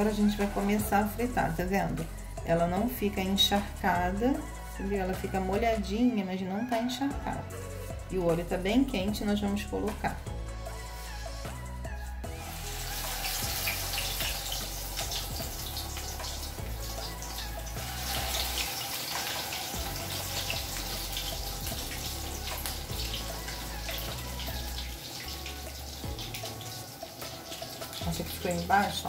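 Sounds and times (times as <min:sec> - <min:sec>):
bread sizzling in hot oil: 0:10.6 - 0:11.5, 0:12.3 - 0:29.0.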